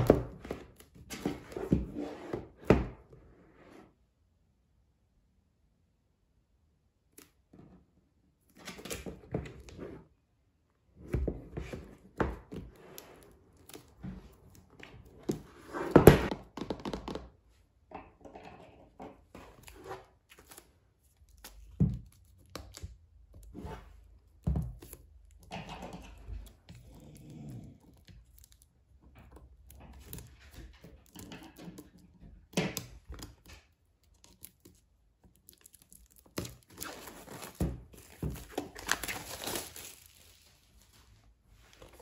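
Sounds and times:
plastic film crinkling: 0:35.4 - 0:42.0.

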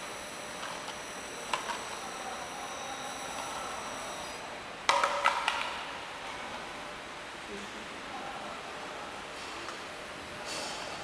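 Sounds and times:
thin high whine: 0:00.0 - 0:04.8.

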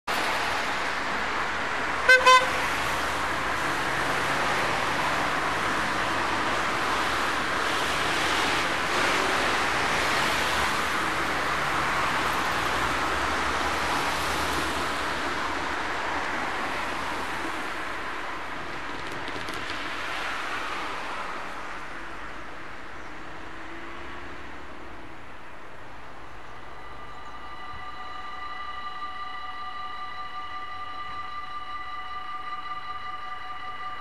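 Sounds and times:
road traffic: 0:00.0 - 0:34.0
car horn toots: 0:02.0 - 0:02.8, 0:26.6 - 0:34.0.

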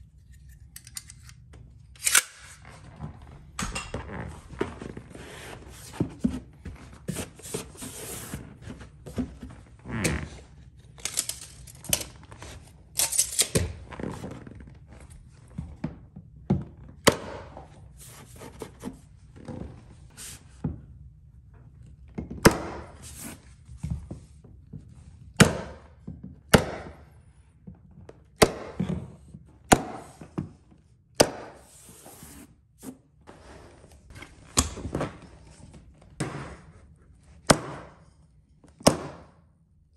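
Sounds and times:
carpet rustling and scraping: 0:02.6 - 0:10.6, 0:31.6 - 0:37.5.

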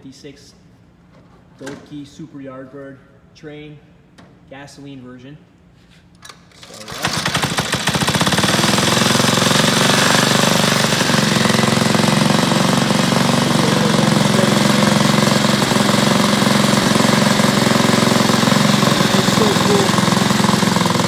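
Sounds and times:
small gasoline engine idling: 0:06.9 - 0:21.0.

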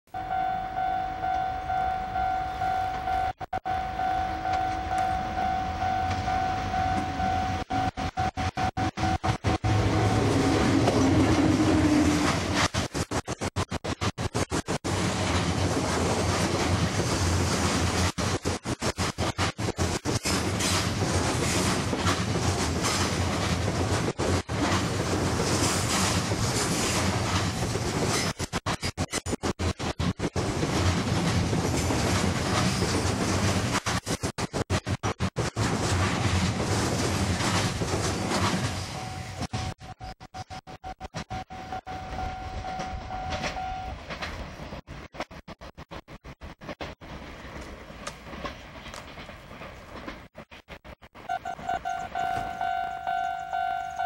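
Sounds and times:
pulsing ringing tone: 0:00.1 - 0:10.3, 0:51.3 - 0:54.0
train low rumble: 0:00.2 - 0:40.1, 0:40.7 - 0:54.0.

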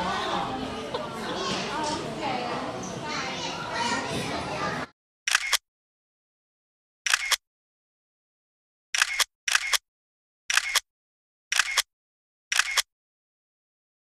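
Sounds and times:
camera shutter double click: 0:05.3 - 0:05.6, 0:07.1 - 0:07.4, 0:09.0 - 0:09.8, 0:10.5 - 0:10.8, 0:11.5 - 0:11.9, 0:12.5 - 0:12.9.

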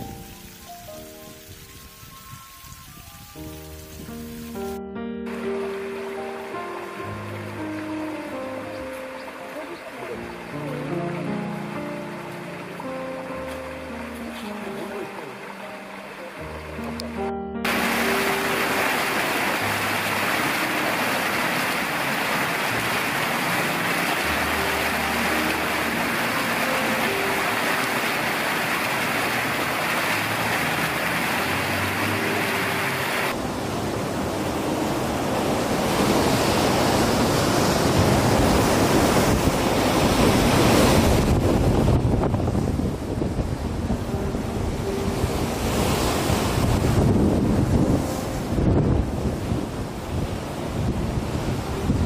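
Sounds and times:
water spraying: 0:00.0 - 0:08.3, 0:17.7 - 0:33.4
faint low musical notes: 0:03.5 - 0:21.7
surf breaking on rocks: 0:17.6 - 0:43.4
wind buffeting microphone: 0:33.4 - 0:52.0.

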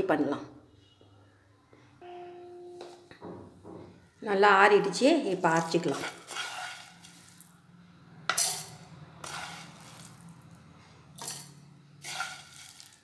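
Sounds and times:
spices rattling in steel jar: 0:11.2 - 0:13.0.

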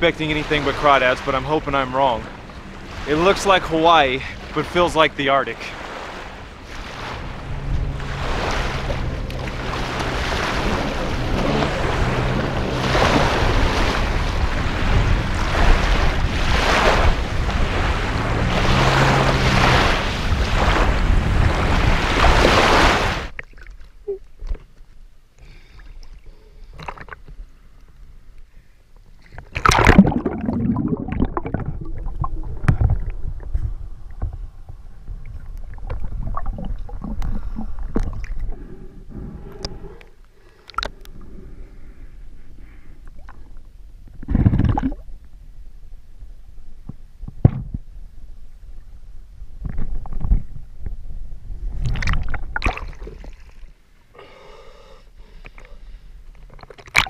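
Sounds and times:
water splashing: 0:00.0 - 0:24.5, 0:29.2 - 0:38.8, 0:51.8 - 0:53.8, 0:56.5 - 0:57.0
loud splash: 0:00.1 - 0:23.4, 0:29.5 - 0:33.0, 0:51.8 - 0:53.7
muffled underwater hush: 0:08.9 - 0:13.2.

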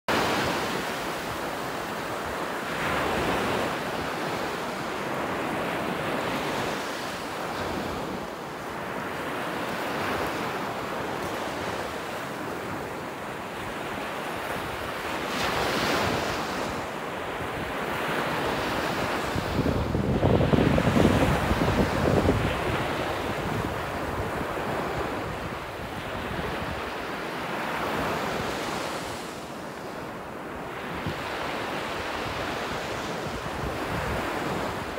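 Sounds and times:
wind buffeting microphone: 0:14.4 - 0:29.0, 0:30.8 - 0:34.9
surf breaking on beach: 0:17.9 - 0:29.4.

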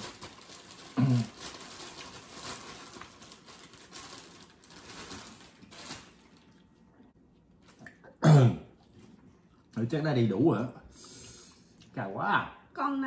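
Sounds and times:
rustling and slurping while eating: 0:00.0 - 0:10.0.

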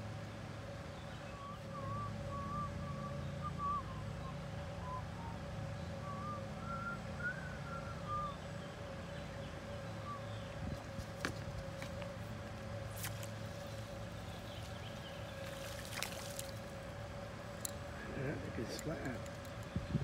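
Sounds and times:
low motor-like hum: 0:00.0 - 0:20.0
wavering whistle-like notes: 0:01.3 - 0:08.6.

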